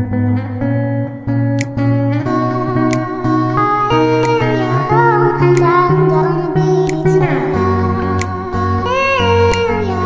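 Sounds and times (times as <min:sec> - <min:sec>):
music of sustained notes: 0:00.0 - 0:10.0.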